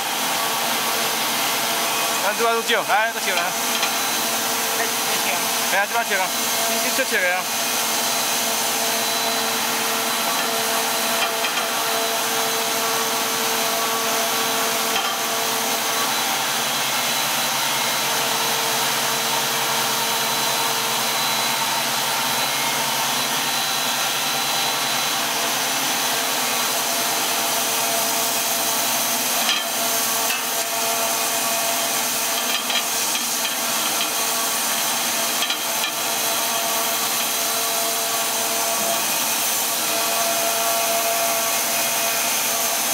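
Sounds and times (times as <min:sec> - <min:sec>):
extruder motor and fan noise: 0:00.0 - 0:42.9.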